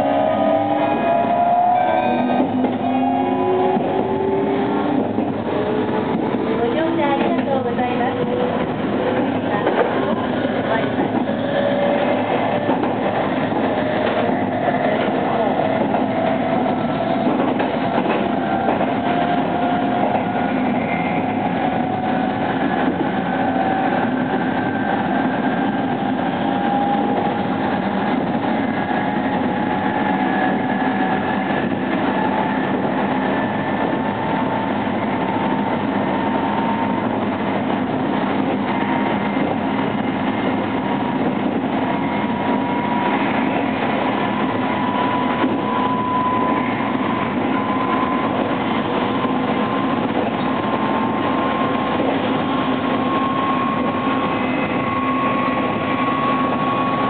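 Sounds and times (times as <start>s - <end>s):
train wheel and rail noise: 0.0s - 57.0s.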